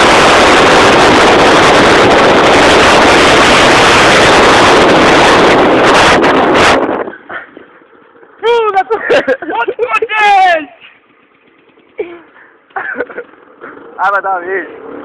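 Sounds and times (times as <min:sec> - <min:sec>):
loud steady rushing noise: 0:00.0 - 0:15.0.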